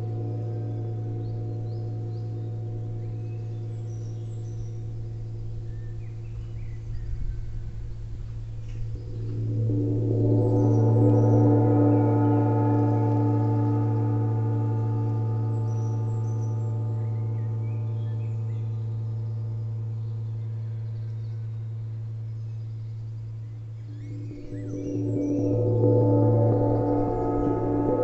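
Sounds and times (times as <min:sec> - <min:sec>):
faint birdsong: 0:00.0 - 0:28.0
gong ringing: 0:09.0 - 0:17.8, 0:24.0 - 0:28.0.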